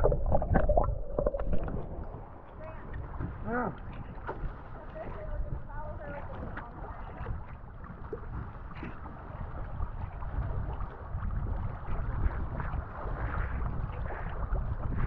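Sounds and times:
swimmer splashing: 0.0s - 11.1s
sea water sloshing and splashing: 0.0s - 15.0s.

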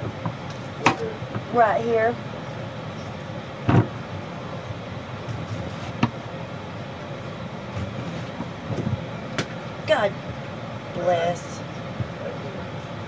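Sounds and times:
low rumble and hiss: 0.0s - 13.0s.

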